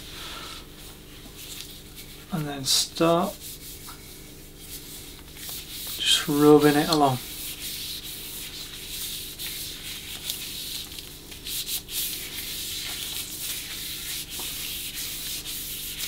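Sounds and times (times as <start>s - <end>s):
hand rubbing wooden handle: 3.3s - 16.0s.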